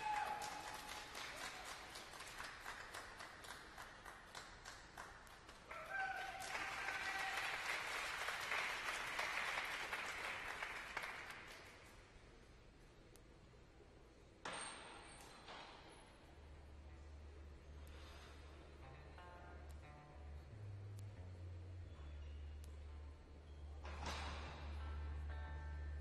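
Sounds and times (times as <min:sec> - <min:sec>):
crowd calling out: 0:00.0 - 0:00.6
audience applauding: 0:00.0 - 0:11.9.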